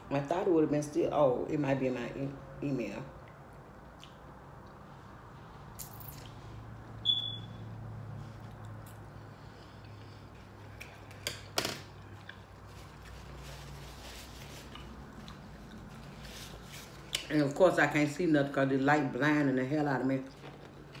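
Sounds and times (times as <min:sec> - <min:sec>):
low steady hum: 0:00.0 - 0:21.0
high ringing ping: 0:07.0 - 0:07.6.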